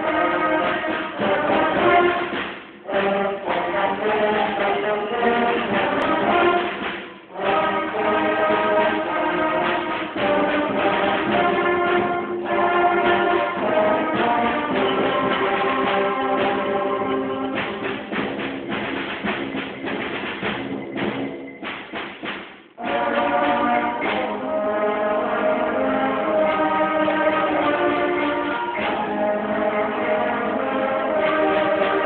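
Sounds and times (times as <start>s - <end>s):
concert band playing: 0.0s - 32.0s
percussion hits: 0.0s - 32.0s.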